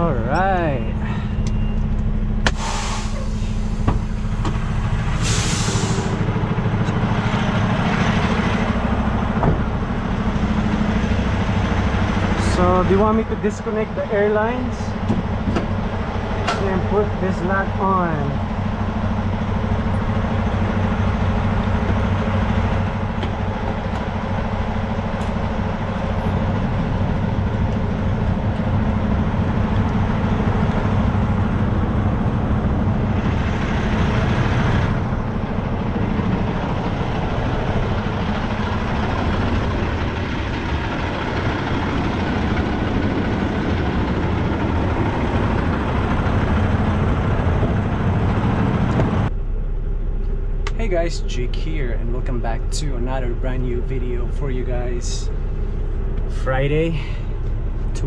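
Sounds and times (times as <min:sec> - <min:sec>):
diesel truck engine idling: 0:00.0 - 0:58.0
hissing rush: 0:05.0 - 0:06.4.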